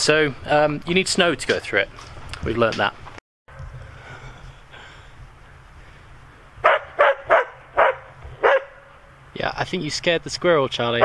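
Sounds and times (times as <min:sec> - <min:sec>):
dog barking: 0:06.6 - 0:08.9.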